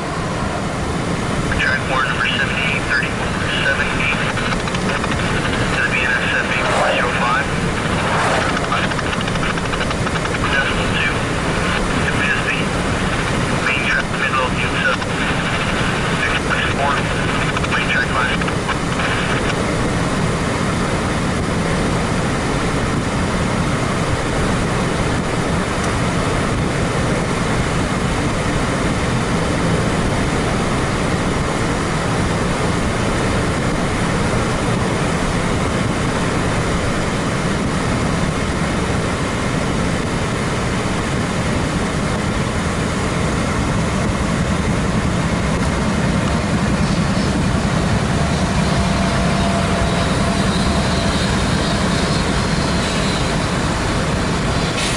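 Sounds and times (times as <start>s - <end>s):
car road and wind rumble: 0.0s - 54.9s.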